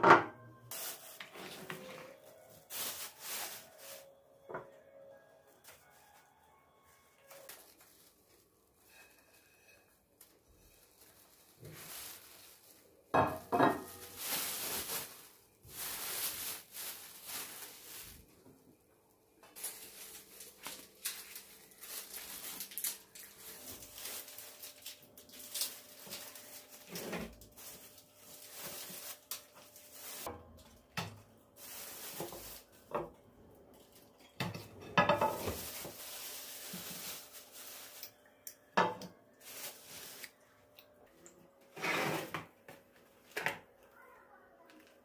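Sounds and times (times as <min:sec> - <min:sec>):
plastic bags crinkling: 0:00.7 - 0:04.1, 0:07.2 - 0:09.4, 0:10.2 - 0:18.5, 0:19.5 - 0:30.7, 0:31.6 - 0:32.9, 0:35.0 - 0:38.5, 0:39.3 - 0:40.4.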